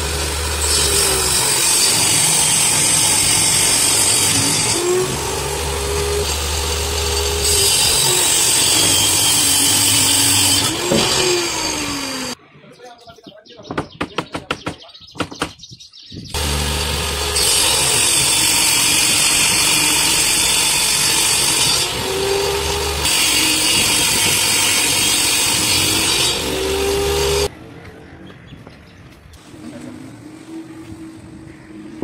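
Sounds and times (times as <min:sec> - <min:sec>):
saw motor humming: 0:00.0 - 0:12.4, 0:16.4 - 0:27.5
table saw cutting board: 0:00.0 - 0:12.4, 0:16.4 - 0:27.5.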